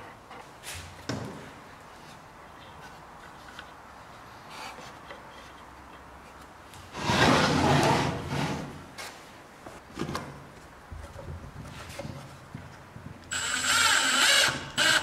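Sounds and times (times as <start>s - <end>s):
wood scraping against wood: 6.3s - 9.2s.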